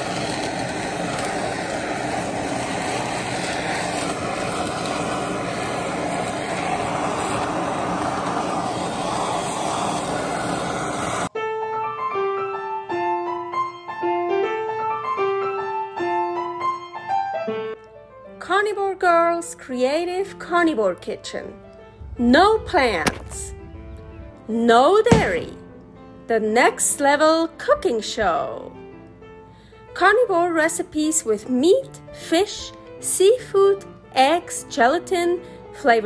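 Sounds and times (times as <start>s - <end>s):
handheld torch flame roaring: 0.0s - 11.3s, 22.0s - 25.7s
solo piano music: 21.6s - 26.3s.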